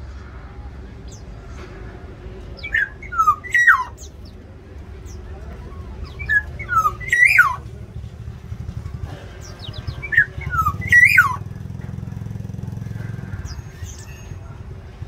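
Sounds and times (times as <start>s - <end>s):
low engine rumble: 0.0s - 15.0s
bird calling with whistled notes: 2.6s - 4.4s, 5.1s - 7.7s, 9.6s - 11.5s.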